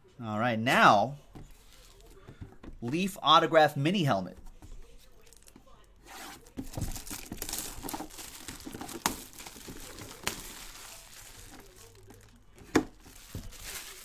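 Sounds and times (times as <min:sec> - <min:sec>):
plastic bag crinkling: 0:05.1 - 0:14.0.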